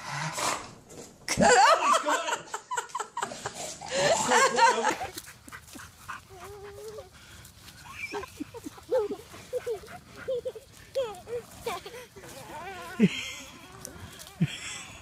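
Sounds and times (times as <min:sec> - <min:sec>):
people laughing: 0:01.3 - 0:05.2, 0:07.9 - 0:15.0.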